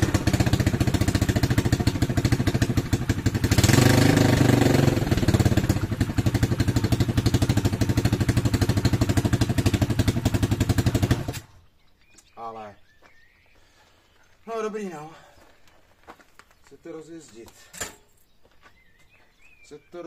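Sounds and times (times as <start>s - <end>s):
motorbike engine idling and revving: 0.0s - 11.6s.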